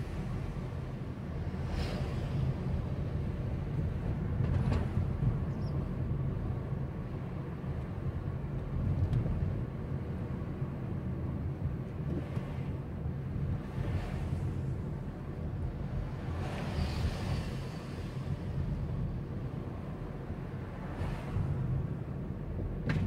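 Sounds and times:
car engine and tyre rumble: 0.0 - 23.0.

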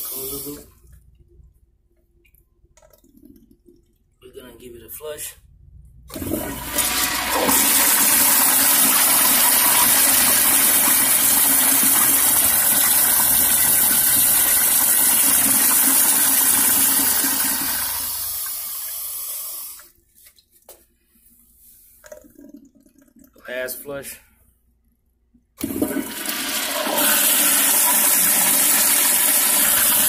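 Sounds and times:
toilet flushing: 0.0 - 0.7, 6.1 - 20.0, 25.6 - 30.0.

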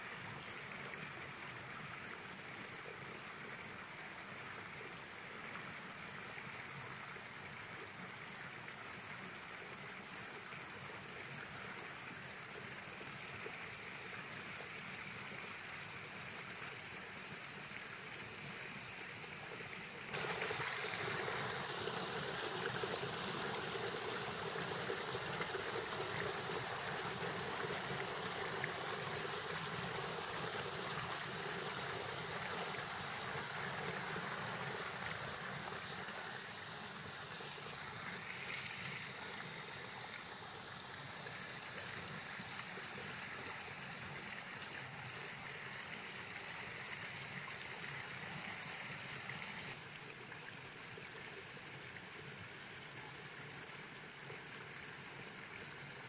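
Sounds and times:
stream flowing over rocks: 0.0 - 56.0.

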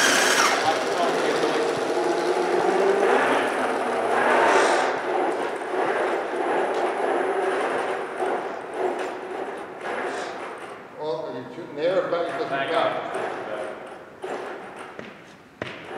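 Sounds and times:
electric drive motors humming: 0.0 - 4.1
wheels rolling over carpet: 0.0 - 10.8.

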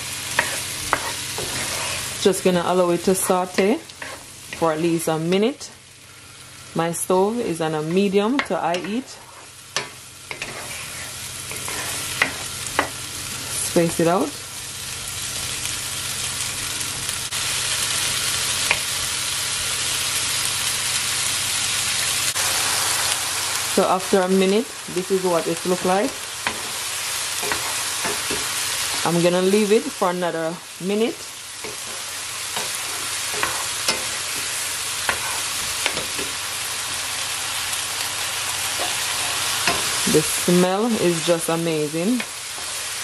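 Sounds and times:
vegetables sizzling in oil: 0.0 - 43.0
wooden spoon scraping a pan: 0.4 - 2.2, 3.2 - 4.7, 8.4 - 12.9, 25.4 - 29.1, 31.6 - 36.3.

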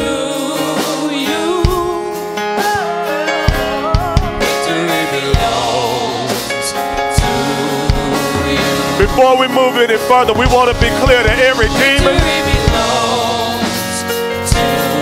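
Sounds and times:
choir singing worship song: 0.0 - 15.0
sustained keys or guitar: 1.7 - 15.0
drum hits: 3.5 - 4.6, 6.5 - 13.8.

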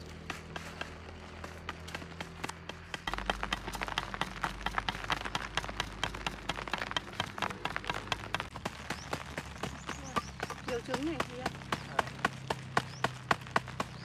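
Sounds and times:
leaf debris crackling on plastic tarp: 3.1 - 14.0.

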